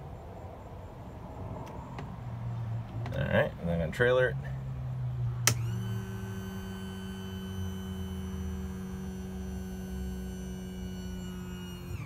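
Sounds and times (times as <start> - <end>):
click: 5.4 - 5.7
electric pump motor humming: 5.4 - 12.0.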